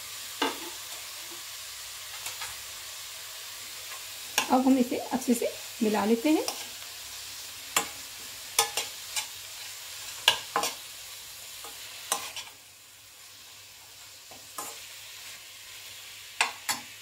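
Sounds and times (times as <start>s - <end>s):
frying sizzle: 0.0s - 17.0s
spoon clacking against pan: 6.4s - 6.8s, 7.7s - 9.4s, 10.0s - 10.9s, 11.5s - 12.6s, 14.2s - 15.0s, 16.4s - 17.0s.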